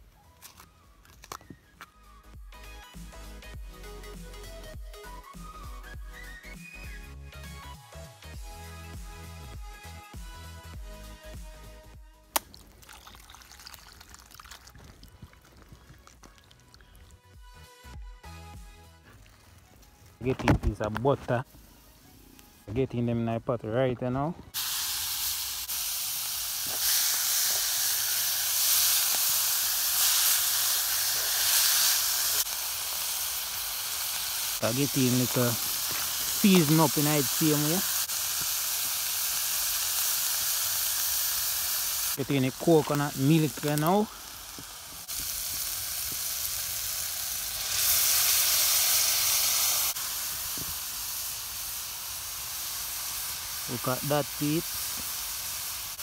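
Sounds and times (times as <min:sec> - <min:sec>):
liquid poured into hot pot: 0:12.5 - 0:16.8
vegetables sizzling in butter: 0:24.5 - 0:56.0.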